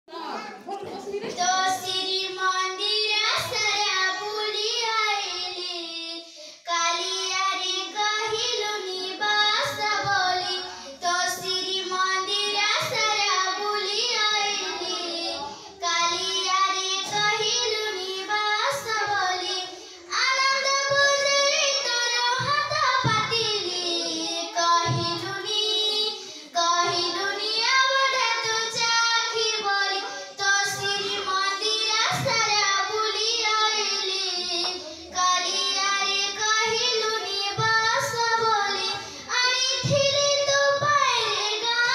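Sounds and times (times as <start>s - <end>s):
girl singing: 1.3s - 41.9s
breaths: 6.2s - 6.7s, 10.6s - 11.0s, 15.4s - 15.8s, 19.7s - 20.1s, 26.1s - 26.6s, 30.0s - 30.4s, 34.8s - 35.2s, 39.0s - 39.3s.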